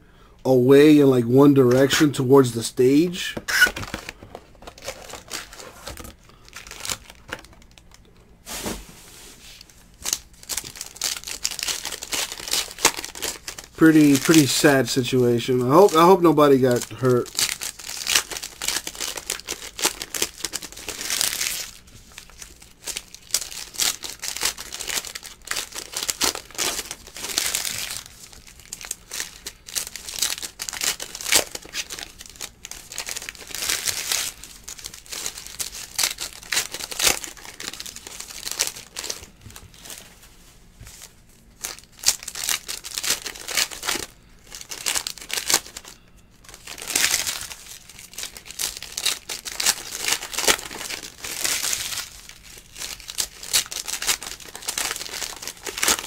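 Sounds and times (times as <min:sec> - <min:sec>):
plastic wrapping tearing and crinkling: 0:03.5 - 0:08.8, 0:09.4 - 0:40.2, 0:40.9 - 0:56.0.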